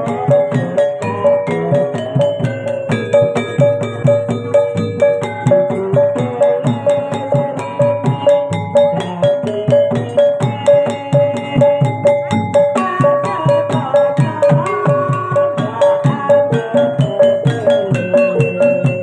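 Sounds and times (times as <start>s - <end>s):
drums: 0.0s - 19.0s
sustained melody line: 0.0s - 19.0s.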